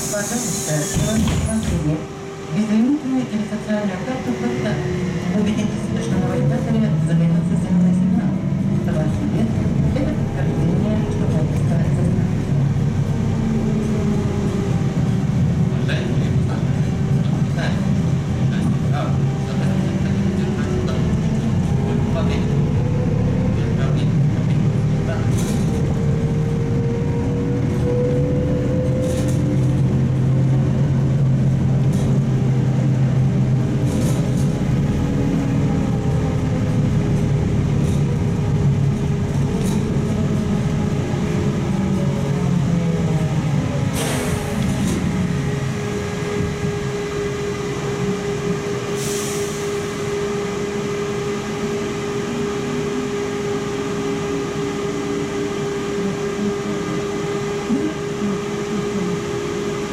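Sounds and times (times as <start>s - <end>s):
road rumble: 0.0s - 59.9s.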